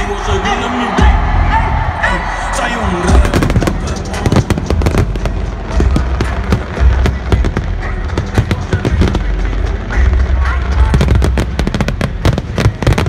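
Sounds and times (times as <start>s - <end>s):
fireworks crackling pops: 3.3s - 9.6s.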